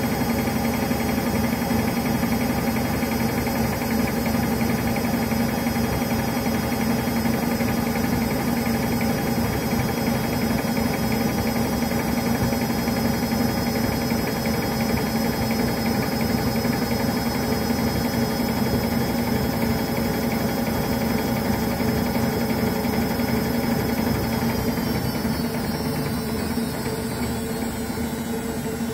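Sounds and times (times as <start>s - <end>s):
washing machine drum spinning: 0.0s - 28.9s.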